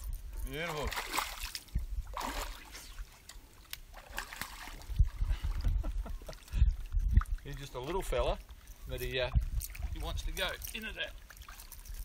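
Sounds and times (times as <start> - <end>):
fish splashing at water surface: 0.7 - 3.0.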